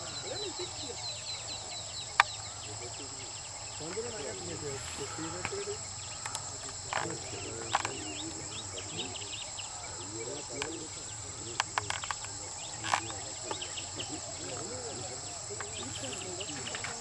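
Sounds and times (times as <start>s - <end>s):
faint murmur of voices: 0.0s - 17.0s
high-pitched insect drone: 0.0s - 17.0s
sharp clicks: 11.5s - 13.7s.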